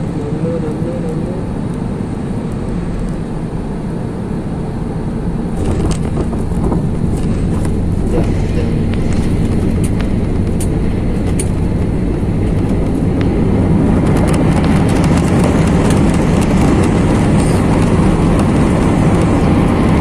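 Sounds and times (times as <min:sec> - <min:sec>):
jet engines roaring in cabin: 0:00.0 - 0:20.0
wheels rolling on runway: 0:05.5 - 0:20.0.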